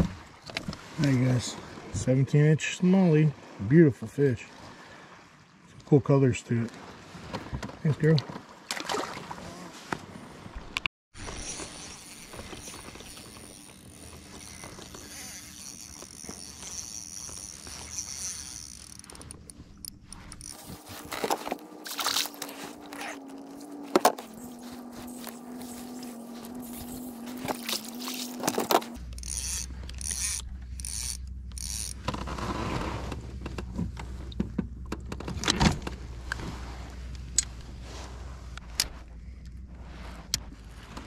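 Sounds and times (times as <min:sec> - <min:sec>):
knocks and clatter on kayak: 0:00.0 - 0:00.9, 0:07.2 - 0:08.8, 0:23.7 - 0:24.3, 0:31.6 - 0:36.5
fishing reel gears whirring: 0:11.2 - 0:32.2.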